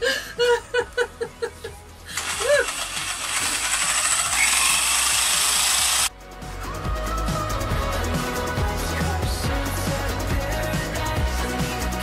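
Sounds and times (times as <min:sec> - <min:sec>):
woman laughing: 0:00.0 - 0:03.3
power drill spinning blender jar: 0:02.1 - 0:06.1.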